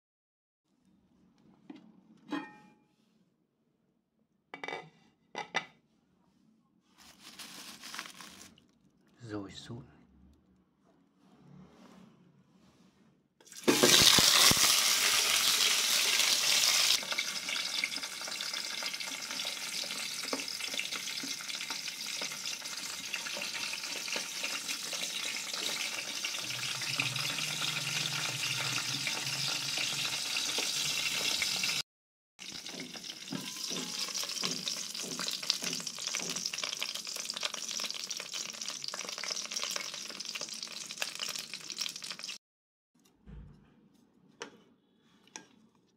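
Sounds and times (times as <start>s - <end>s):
sausages sizzling in a pan: 13.4s - 31.8s, 32.4s - 42.4s.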